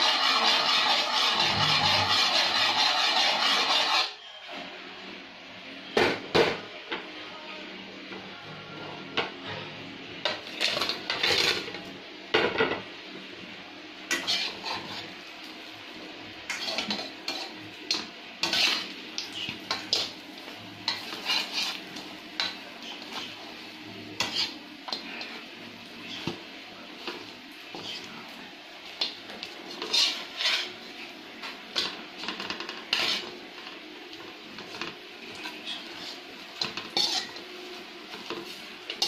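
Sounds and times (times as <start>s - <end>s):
metal spatula scraping a wok: 0.0s - 4.3s, 10.4s - 11.8s, 14.1s - 15.2s, 16.5s - 23.5s, 24.1s - 26.4s, 27.7s - 28.1s, 29.0s - 33.8s, 34.6s - 39.0s.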